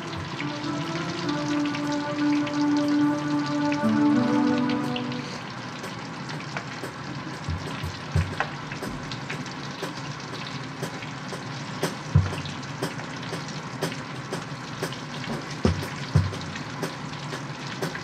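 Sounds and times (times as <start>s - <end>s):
fish sizzling in hot oil: 5.6s - 18.0s.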